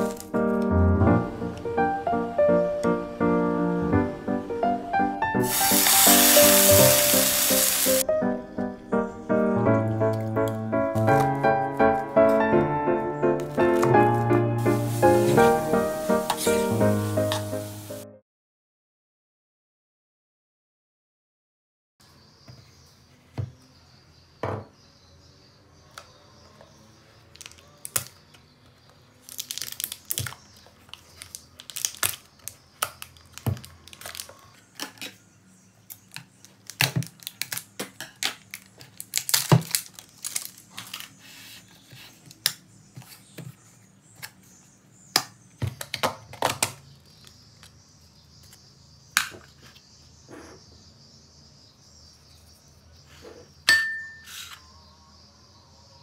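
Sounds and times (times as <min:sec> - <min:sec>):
plastic tub crinkling: 0:29.2 - 0:35.2, 0:35.9 - 0:41.5.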